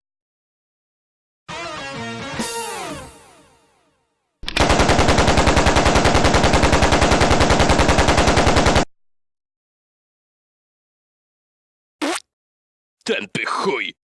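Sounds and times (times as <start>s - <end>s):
automatic rifle fire: 4.4s - 8.9s.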